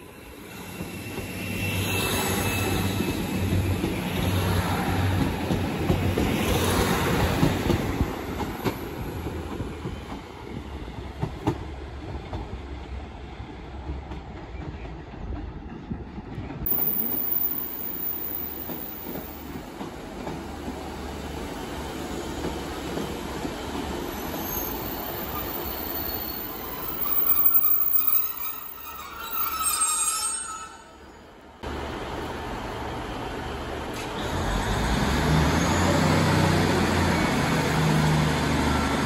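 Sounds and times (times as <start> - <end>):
train wheel squeal: 0.0 - 5.2, 16.7 - 19.6, 21.8 - 31.4, 35.3 - 38.0
diesel train rumble: 16.7 - 21.2.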